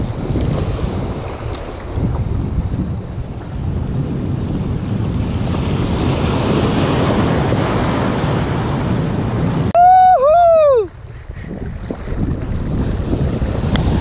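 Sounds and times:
wind on microphone: 0.0s - 14.0s.

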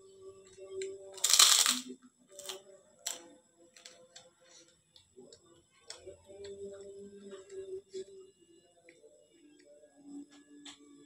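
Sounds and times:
cracker crunching: 1.2s - 3.2s.

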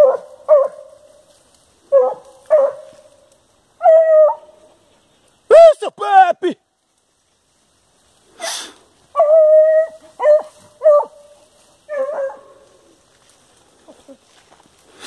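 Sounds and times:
dog barking: 0.0s - 1.0s, 1.9s - 3.1s, 3.8s - 4.6s, 9.2s - 11.3s, 11.9s - 12.6s
dog baying: 9.2s - 12.7s.

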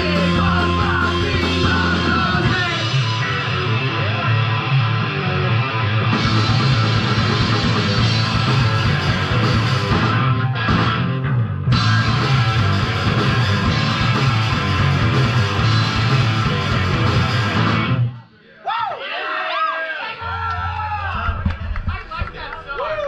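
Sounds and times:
bass guitar: 0.0s - 18.2s
distorted electric guitars: 0.0s - 18.2s
drums: 0.0s - 19.0s, 20.2s - 23.0s.

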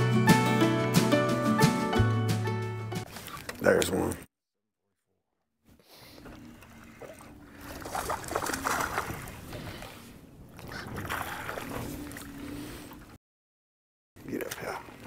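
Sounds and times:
water splashing against boat: 6.0s - 13.2s
fish thrashing at water surface: 6.2s - 10.0s, 10.6s - 12.4s.

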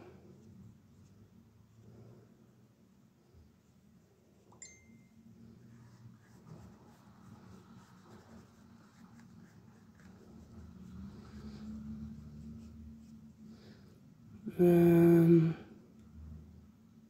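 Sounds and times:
low room hum: 0.0s - 17.0s
paintbrush strokes on paper: 0.1s - 4.5s, 5.2s - 14.2s
high ringing clink: 4.6s - 5.2s.

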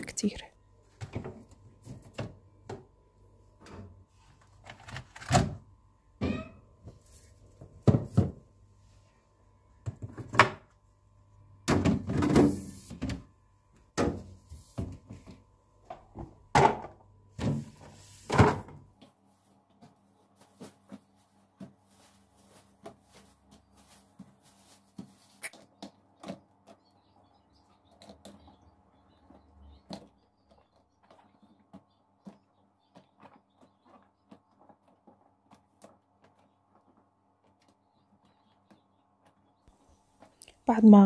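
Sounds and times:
refrigerator shelves knocking: 11.6s - 13.3s, 16.0s - 18.8s.

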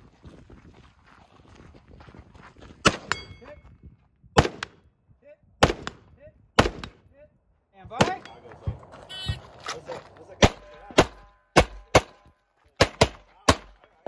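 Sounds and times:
rifle shots: 5.6s - 6.0s, 6.6s - 7.0s, 10.4s - 12.2s.

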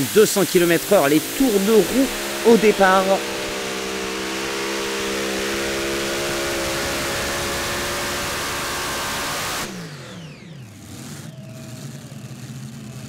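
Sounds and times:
pulling tractor engines screaming: 0.0s - 13.0s.

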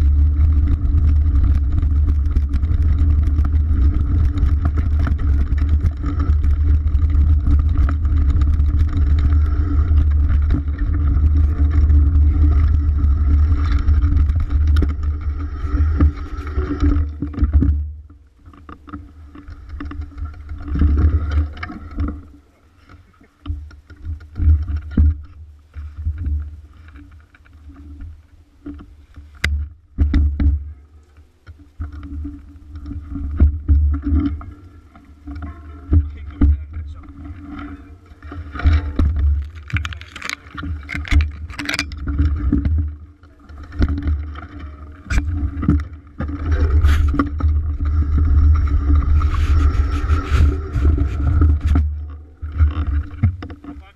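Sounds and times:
bike knocks and rattles: 0.0s - 22.2s, 28.8s - 30.8s, 35.4s - 52.0s
bike trail rumble: 0.0s - 53.9s
wind on microphone: 43.7s - 53.5s.

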